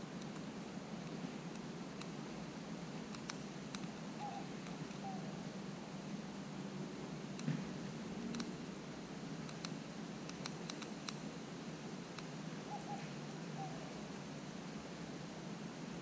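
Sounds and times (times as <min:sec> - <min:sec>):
steady background hiss: 0:00.0 - 0:16.0
squirrel nibbling clicks: 0:00.2 - 0:02.2, 0:03.1 - 0:04.0, 0:08.3 - 0:08.6, 0:09.4 - 0:11.3
squirrel chirps: 0:03.8 - 0:05.4, 0:12.6 - 0:14.0.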